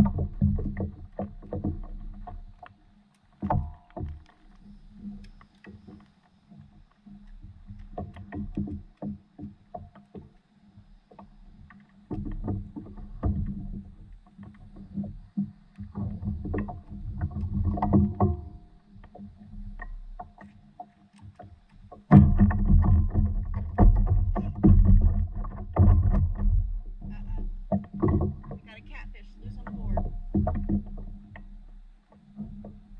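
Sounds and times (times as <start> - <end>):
water sloshing against board: 0.0 - 32.9
knocks on paddleboard deck: 14.8 - 18.7, 21.9 - 31.4.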